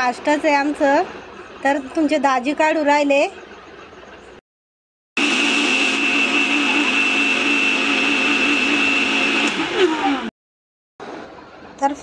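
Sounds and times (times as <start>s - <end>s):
mixer grinder whining: 5.2s - 10.3s.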